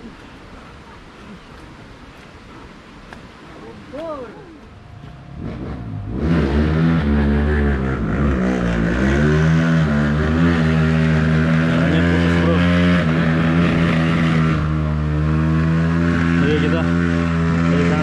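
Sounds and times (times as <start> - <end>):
motorcycle engine revving: 4.9 - 18.0.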